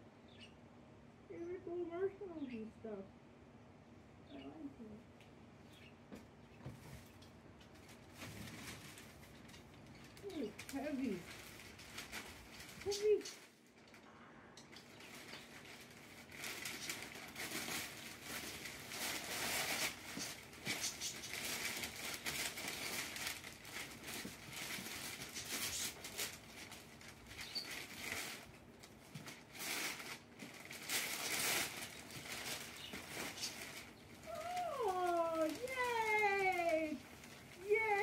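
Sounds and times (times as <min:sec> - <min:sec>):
wrapping paper tearing and crumpling: 0:10.0 - 0:14.1, 0:14.7 - 0:38.0.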